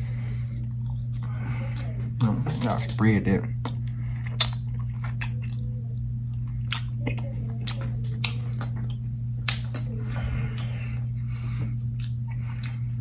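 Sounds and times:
low hum: 0.0s - 13.0s
person chewing wet mouth sounds: 0.5s - 13.0s.

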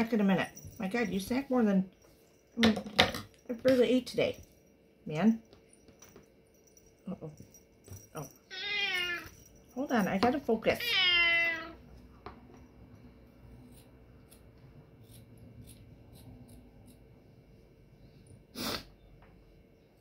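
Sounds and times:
scissors snipping felt: 13.6s - 17.0s.

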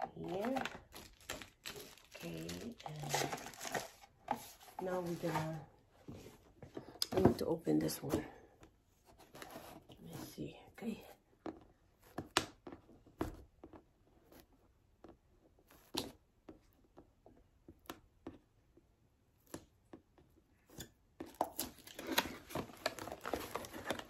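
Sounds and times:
cardboard box and plastic handling: 0.0s - 8.2s, 21.2s - 24.0s.

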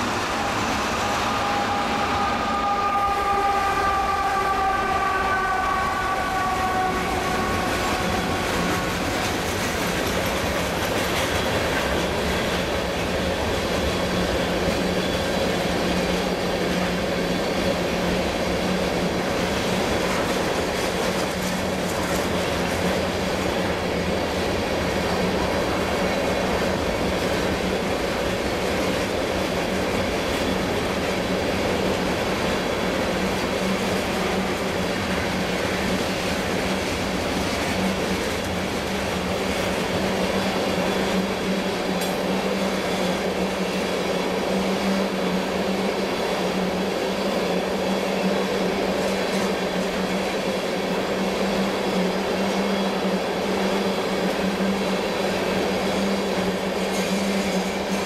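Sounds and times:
locomotive pitched tone: 0.0s - 11.6s
train wheels rumbling on rail: 0.0s - 58.0s.

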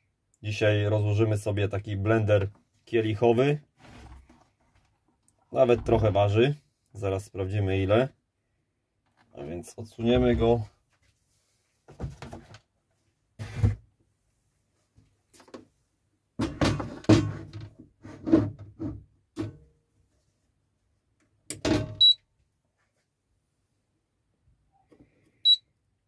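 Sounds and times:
plastic cover shifted by hand: 3.8s - 5.0s.

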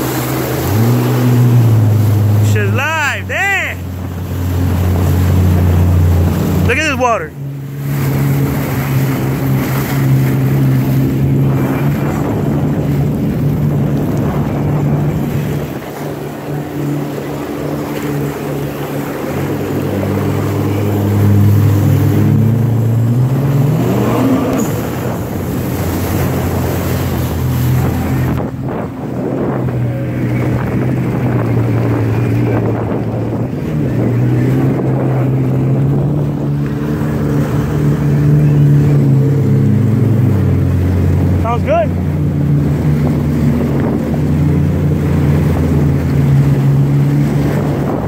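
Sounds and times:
rushing water spray: 0.0s - 13.4s
jet ski engine running: 0.0s - 48.0s
wind on microphone: 7.8s - 41.4s, 42.0s - 48.0s.

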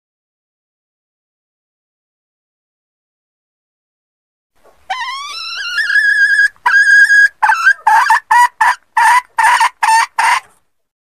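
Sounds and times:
junglefowl hen cackling: 4.8s - 10.6s.

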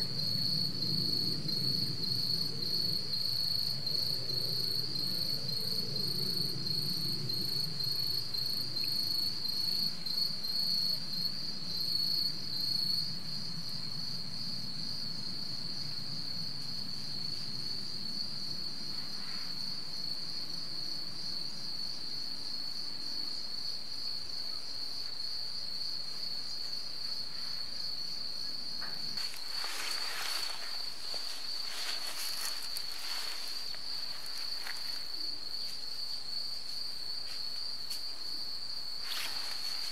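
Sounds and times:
insects trilling: 0.0s - 39.9s
scratchy rustling: 29.2s - 35.0s.

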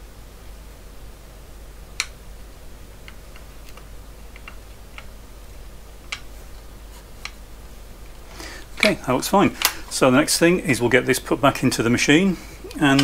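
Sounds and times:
clicks and taps of handled mechanism: 6.1s - 6.3s.

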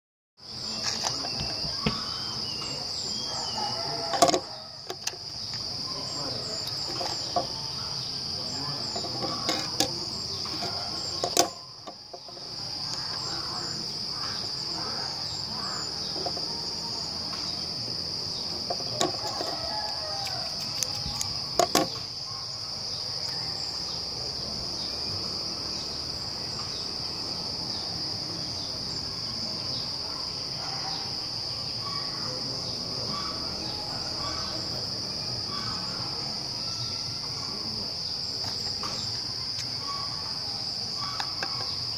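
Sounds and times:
high-pitched insect chorus: 0.4s - 41.9s
objects clicking on a table: 8.9s - 13.0s, 18.6s - 22.0s.

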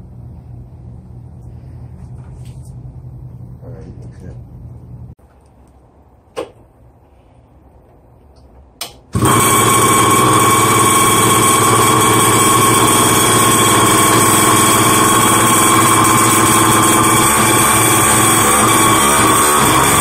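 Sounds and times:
small two-stroke engine running: 9.1s - 20.0s.

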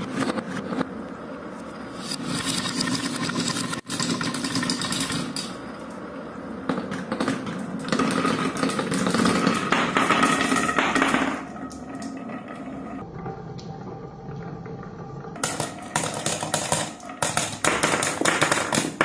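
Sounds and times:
marbles rolling on wooden track: 6.7s - 13.0s, 15.4s - 19.0s.

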